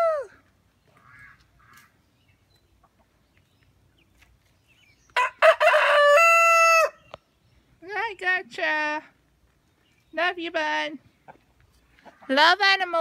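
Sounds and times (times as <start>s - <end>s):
rooster crowing: 5.2s - 7.0s.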